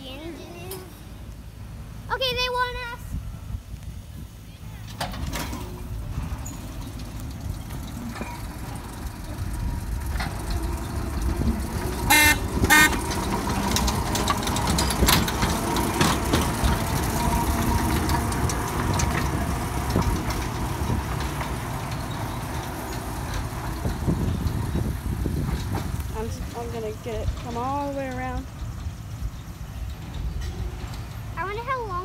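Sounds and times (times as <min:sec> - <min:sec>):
locomotive engine running: 0:00.0 - 0:32.0
wheels clicking on track: 0:03.8 - 0:32.0
locomotive horn toots: 0:12.0 - 0:13.3.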